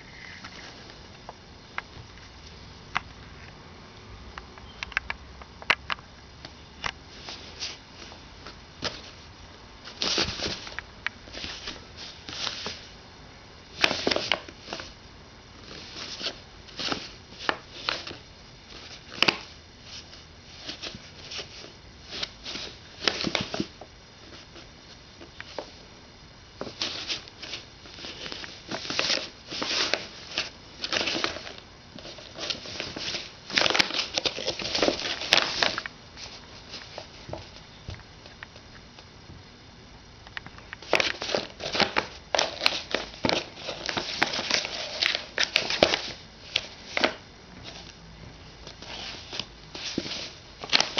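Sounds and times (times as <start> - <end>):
paper bag crinkling and rustling: 13.7 - 15.0, 15.6 - 24.6, 26.6 - 37.6, 40.8 - 47.9, 48.6 - 50.9.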